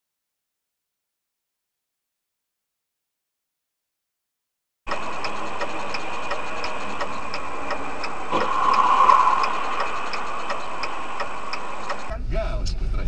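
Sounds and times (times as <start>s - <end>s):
car indicator relay ticking: 4.9s - 8.8s, 9.4s - 12.1s
road and engine noise in car: 4.9s - 13.0s.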